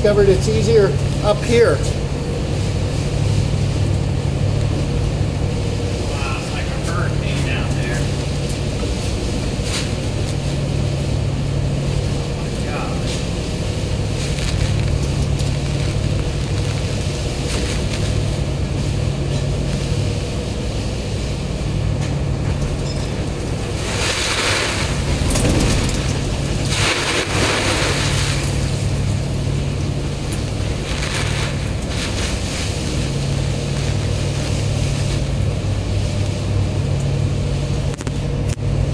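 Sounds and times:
ferry engines droning: 0.0s - 38.9s
wind and waves: 0.6s - 38.9s
spray washing over deck: 23.4s - 36.9s.

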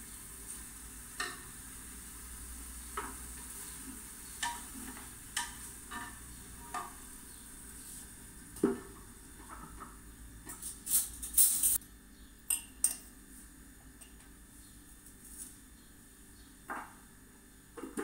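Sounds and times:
meat sizzling in a pot: 0.0s - 9.6s.

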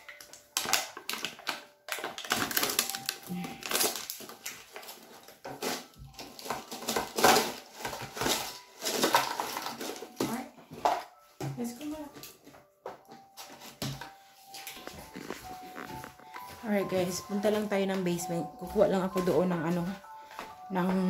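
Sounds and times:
potato chips crunching: 0.0s - 10.2s.

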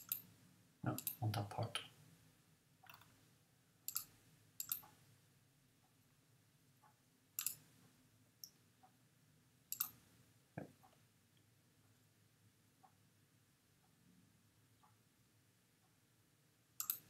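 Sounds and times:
computer mouse clicks: 0.0s - 0.3s, 0.9s - 1.2s, 2.8s - 3.2s, 3.9s - 5.0s, 7.4s - 7.6s, 9.7s - 10.0s, 16.8s - 17.0s.

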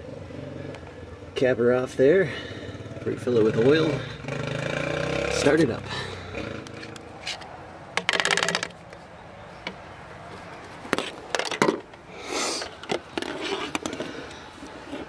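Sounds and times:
plastic bottles clicking and knocking: 7.9s - 9.0s, 10.6s - 12.0s, 12.6s - 14.4s.

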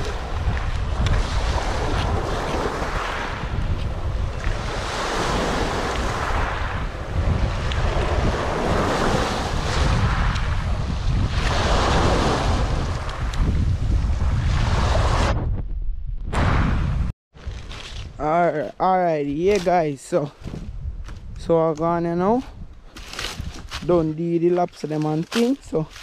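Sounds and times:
waves washing over pebbles: 0.0s - 13.3s
wind buffeting microphone: 0.0s - 26.0s.

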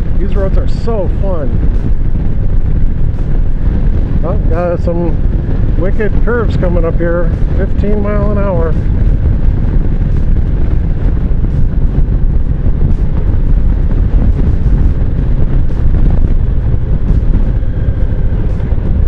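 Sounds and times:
motorcycle engine drone: 0.0s - 19.0s
wind buffeting microphone: 0.0s - 19.0s.

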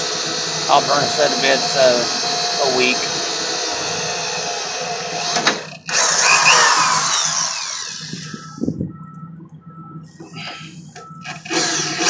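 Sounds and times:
drill boring through steel: 0.0s - 8.4s, 11.2s - 12.0s.

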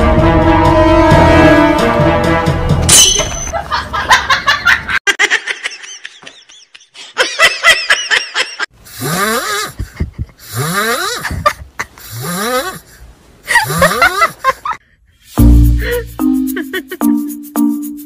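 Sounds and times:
person laughing: 3.5s - 14.8s, 15.7s - 17.2s.

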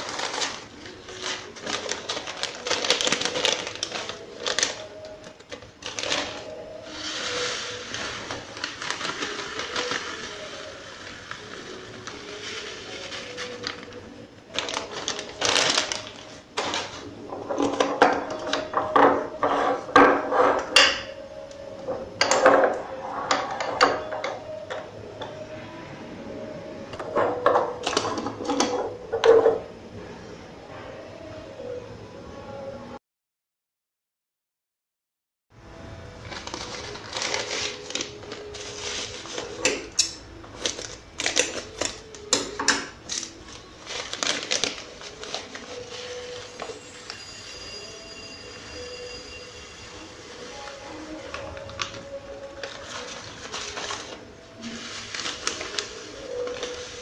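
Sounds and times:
plastic bag crinkling: 0.0s - 18.7s, 36.2s - 46.8s, 50.6s - 57.0s.

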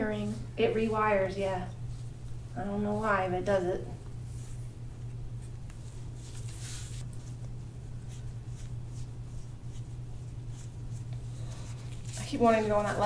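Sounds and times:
steady low hum: 0.0s - 13.0s
hands rubbing a back: 4.1s - 13.0s.

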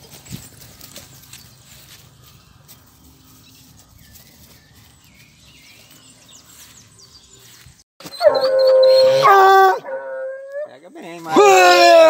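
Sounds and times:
dog baying in long howls: 8.2s - 10.7s.

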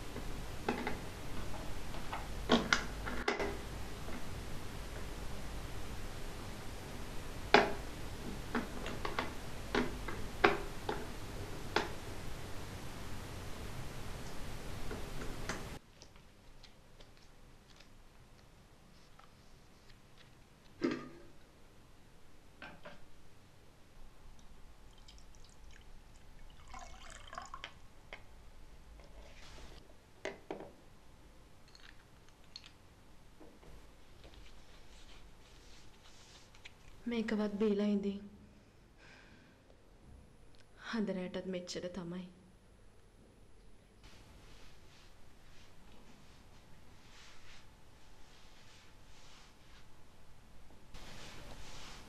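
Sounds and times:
liquid trickling through funnel: 24.9s - 27.8s.

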